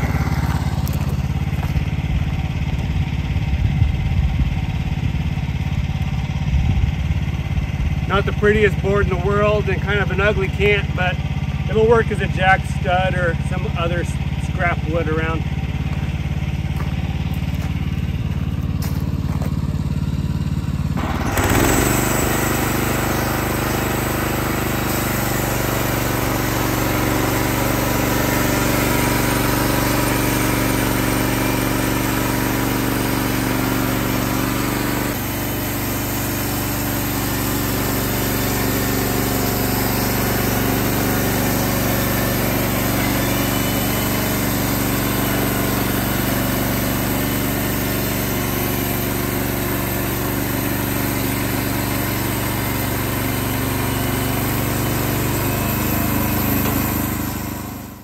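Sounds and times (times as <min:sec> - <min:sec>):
sawmill engine drone: 0:00.0 - 0:58.0
band saw cutting wood: 0:21.0 - 0:58.0.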